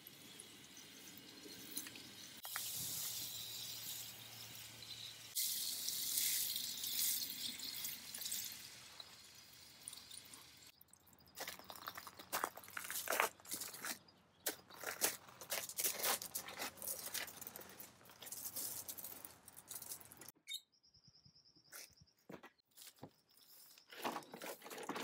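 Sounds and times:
hose spraying water: 0:00.0 - 0:10.7.

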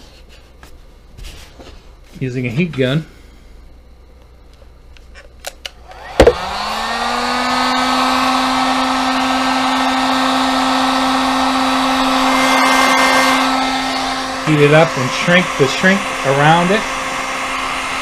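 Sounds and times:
heat gun fan humming: 0:03.8 - 0:18.0.

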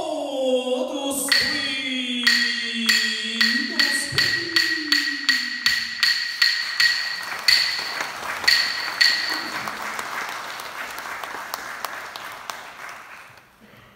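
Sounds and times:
sharp ringing clacks: 0:01.3 - 0:09.8
audience applause: 0:07.2 - 0:13.6.

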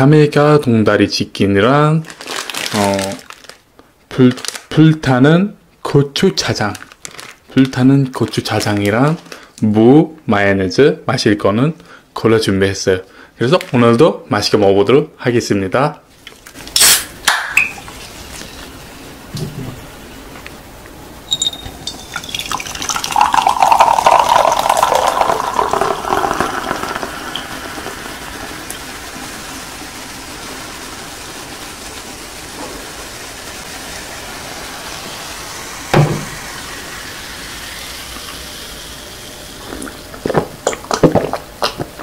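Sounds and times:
fizzing foam hiss: 0:02.1 - 0:03.5, 0:21.9 - 0:40.5
soda pouring into glass: 0:21.3 - 0:40.6
person drinking: 0:21.4 - 0:27.9, 0:39.5 - 0:42.0
knock: 0:36.0 - 0:36.3.

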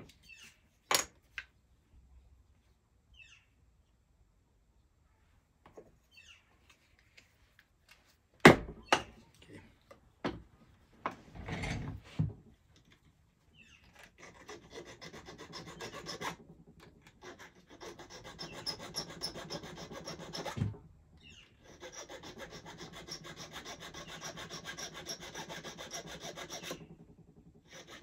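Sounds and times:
hand file rubbing on metal: 0:14.0 - 0:20.6, 0:21.4 - 0:28.0.

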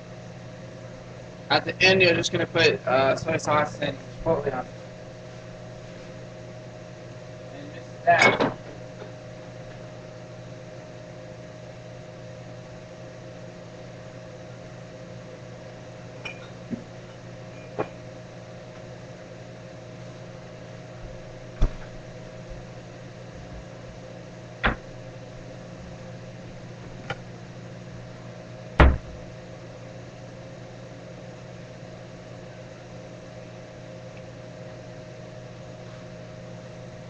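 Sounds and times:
kitchen appliance electric hum: 0:00.0 - 0:37.0
sharp knocks and clicks: 0:24.6 - 0:24.9.

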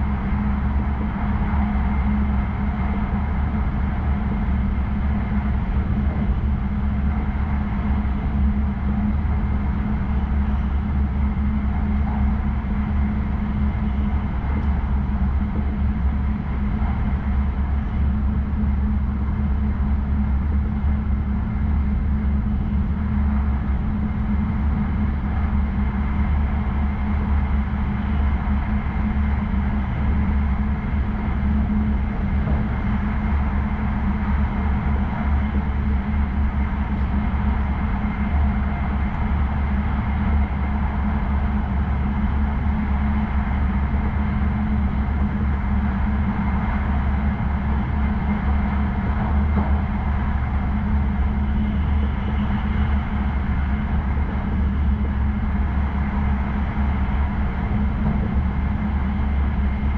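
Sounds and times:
train interior rumble and hum: 0:00.0 - 0:59.9.

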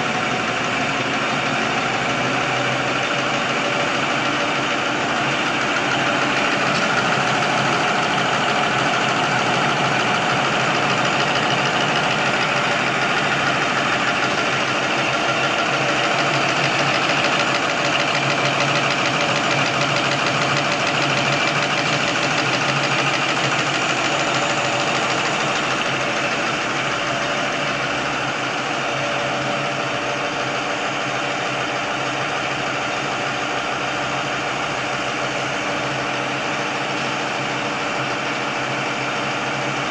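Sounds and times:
folding machine clattering and whirring: 0:00.0 - 0:39.9.

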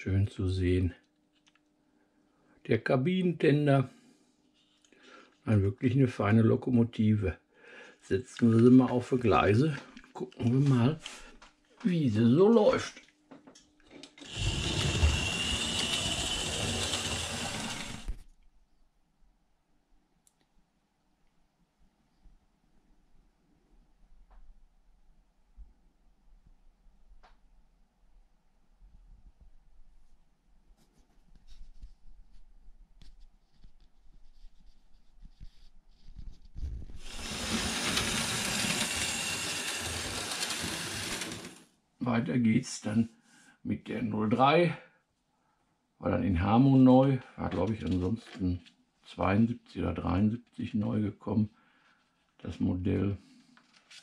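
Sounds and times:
model train clicking on track: 0:14.2 - 0:18.2, 0:37.0 - 0:41.6
model train motor whirring: 0:14.2 - 0:18.3, 0:37.0 - 0:41.7.

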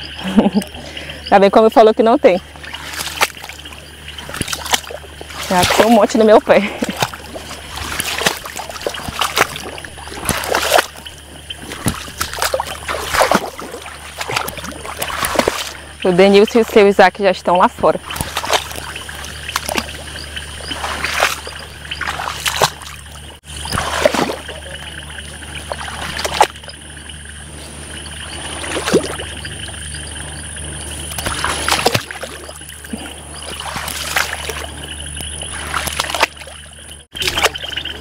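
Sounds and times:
water sloshing and splashing: 0:00.0 - 0:38.0.

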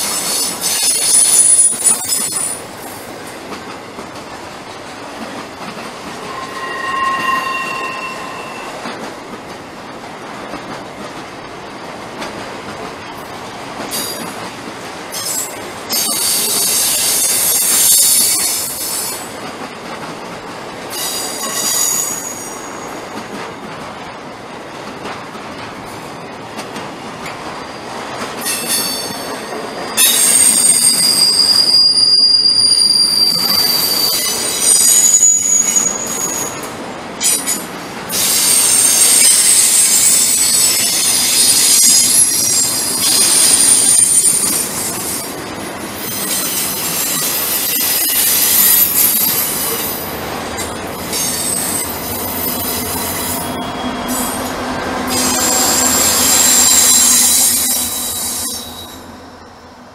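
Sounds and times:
train wheels squealing: 0:00.0 - 0:03.0, 0:05.6 - 0:09.4, 0:15.1 - 0:19.4, 0:20.8 - 0:23.4, 0:27.3 - 0:59.8
rumble of train cars: 0:00.0 - 0:59.9.

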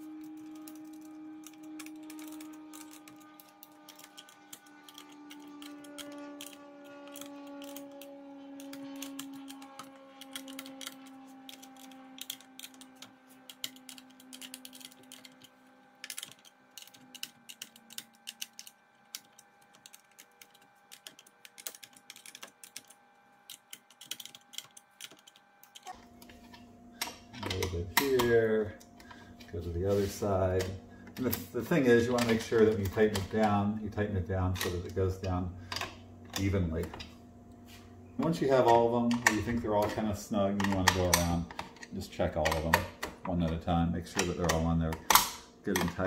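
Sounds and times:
ratcheting wrench clicking: 0:00.4 - 0:22.9.

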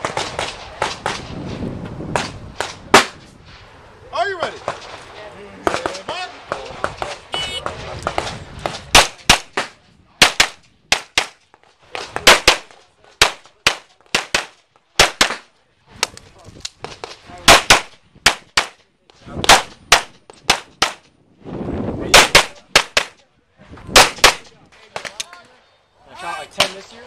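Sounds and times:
pistol shots: 0:17.5 - 0:18.8, 0:24.0 - 0:25.1.

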